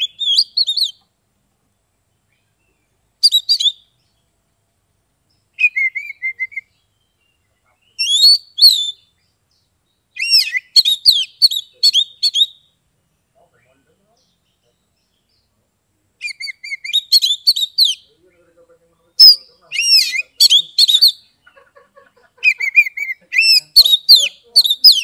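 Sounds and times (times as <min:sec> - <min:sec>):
bird singing whistled phrases: 0:00.0 - 0:01.0, 0:03.2 - 0:03.9, 0:05.6 - 0:09.3, 0:10.2 - 0:12.8, 0:16.2 - 0:18.1, 0:19.2 - 0:21.4, 0:22.4 - 0:25.0.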